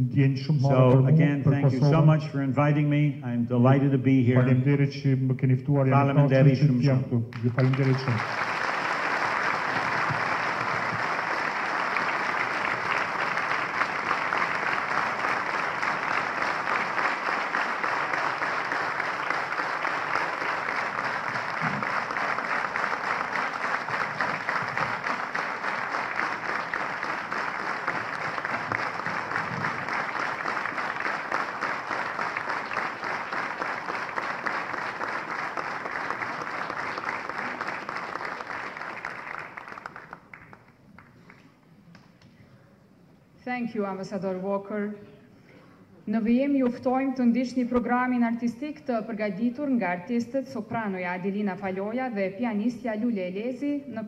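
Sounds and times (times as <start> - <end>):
audience applauding: 7.3 - 42.2.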